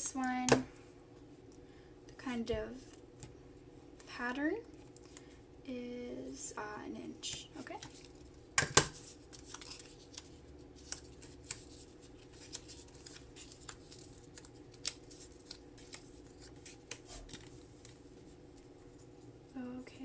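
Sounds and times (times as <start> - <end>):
low steady hum: 0.0 - 20.0
paper circles clicking and tapping: 7.3 - 18.0.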